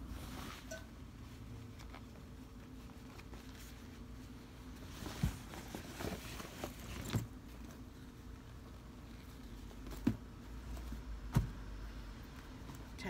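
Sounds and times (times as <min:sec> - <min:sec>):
leather rustling: 0:01.3 - 0:11.0.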